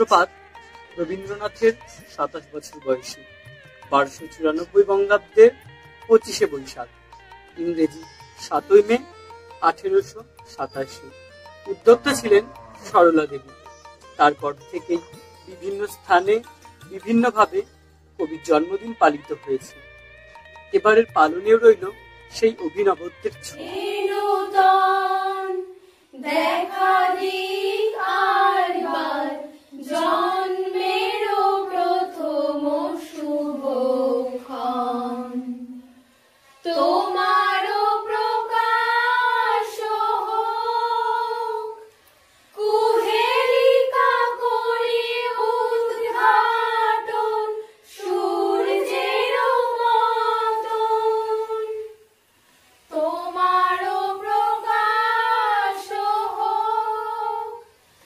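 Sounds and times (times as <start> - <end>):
women singing in unison: 23.6 - 36.0, 36.6 - 52.2, 52.8 - 57.9.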